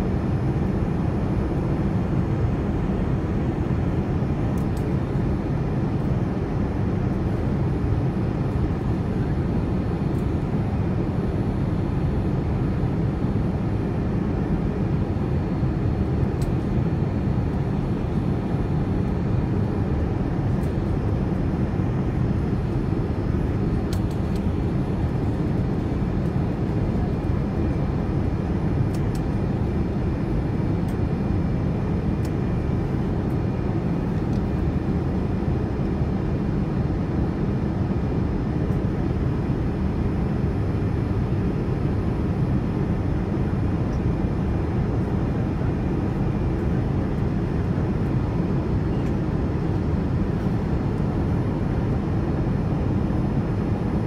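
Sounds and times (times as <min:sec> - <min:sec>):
airliner cabin engine rumble: 0:00.0 - 0:54.0.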